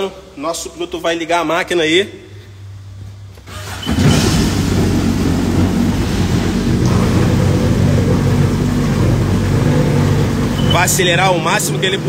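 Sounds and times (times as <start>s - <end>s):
watercraft engine starting and idling: 3.4s - 12.0s.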